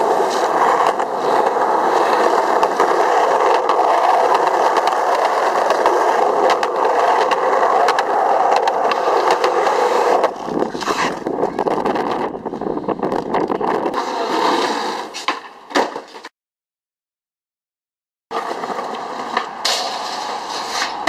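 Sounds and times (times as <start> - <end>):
wheels clicking over pavement joints: 0.0 - 15.9, 18.4 - 21.0
skateboard wheels rolling on concrete: 0.0 - 16.3, 18.3 - 21.0.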